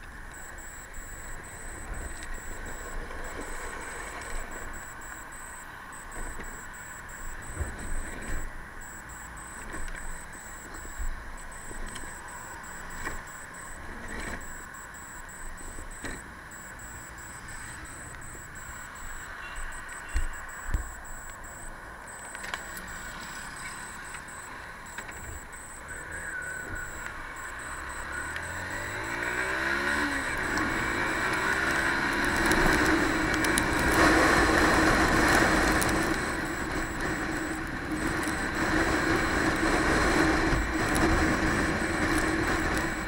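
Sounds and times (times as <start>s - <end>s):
faint pulsing high tone: 0.3s - 29.4s.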